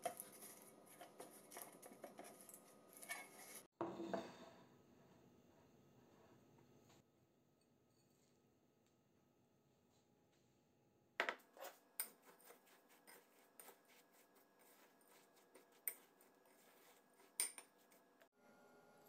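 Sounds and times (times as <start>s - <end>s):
spoon stirring in glass bowl: 0.0s - 3.7s, 11.5s - 18.2s.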